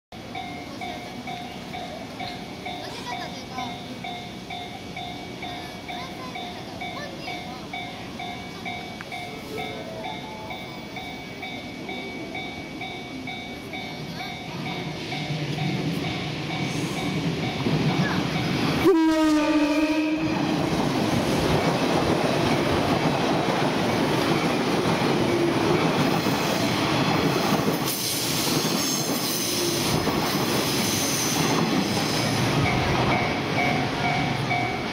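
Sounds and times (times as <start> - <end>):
train wheel and track noise: 0.1 - 34.9
train air horn blast: 18.8 - 20.4.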